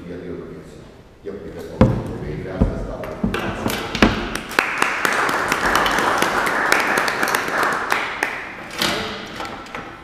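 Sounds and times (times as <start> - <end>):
audience applauding: 3.3 - 8.7.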